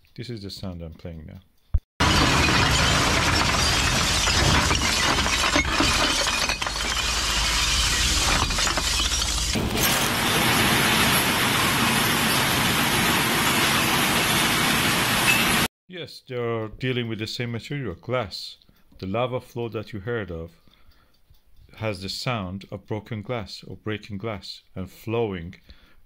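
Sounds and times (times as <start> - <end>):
glass bottles clinking and breaking: 2.0 - 11.2.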